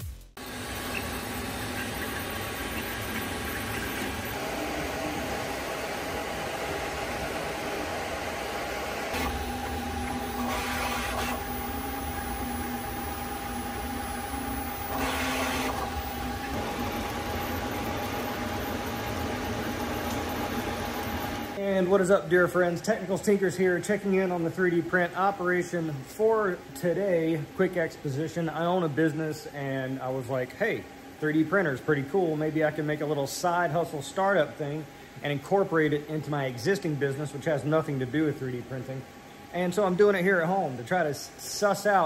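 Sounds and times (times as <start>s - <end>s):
printer motor whines: 0.4s - 21.6s
cooling fans whirring: 0.4s - 42.0s.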